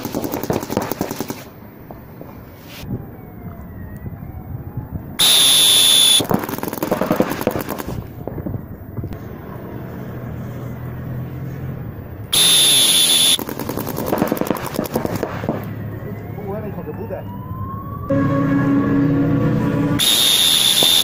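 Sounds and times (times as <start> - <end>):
paintball markers firing: 0.0 - 1.5, 5.2 - 8.1, 12.4 - 15.7
high-pitched signal tone: 5.2 - 6.2, 12.4 - 13.4, 17.3 - 21.0.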